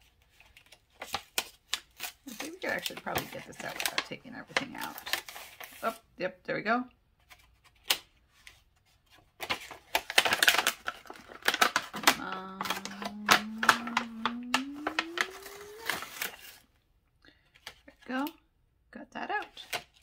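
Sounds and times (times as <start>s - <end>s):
plastic packaging crackling: 0.4s - 5.8s, 9.5s - 16.7s
hummed tone rising in pitch: 12.4s - 15.9s.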